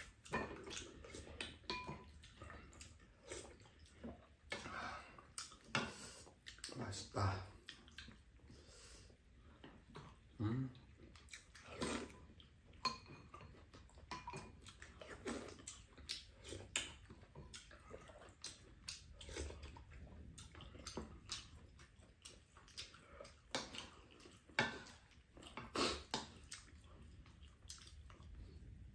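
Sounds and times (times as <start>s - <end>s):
chewing: 0.0s - 28.9s
slurping soup: 7.9s - 12.3s, 14.4s - 17.0s, 17.6s - 28.8s.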